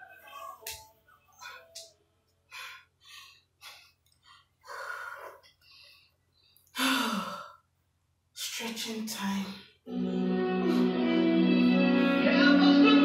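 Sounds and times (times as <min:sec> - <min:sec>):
person breathing hard: 0:02.5 - 0:07.7
person sighing: 0:06.8 - 0:07.5.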